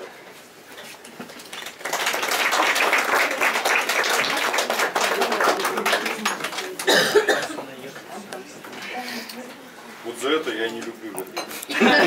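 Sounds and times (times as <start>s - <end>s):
audience applauding: 1.4s - 7.3s.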